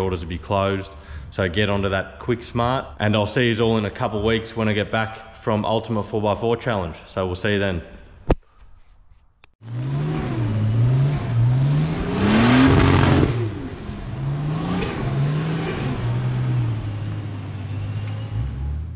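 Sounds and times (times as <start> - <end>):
engine revving: 9.6 - 18.9.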